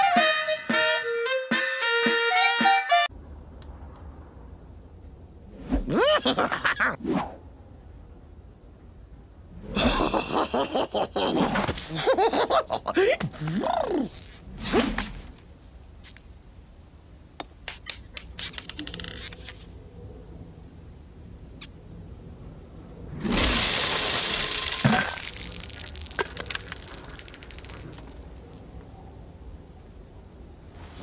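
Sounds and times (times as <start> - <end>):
hard candies scattering on wooden floor: 23.3 - 28.5.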